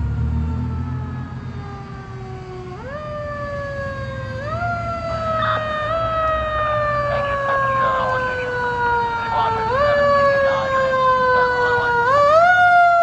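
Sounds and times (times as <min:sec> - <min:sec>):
fire siren wailing: 0:00.0 - 0:13.0.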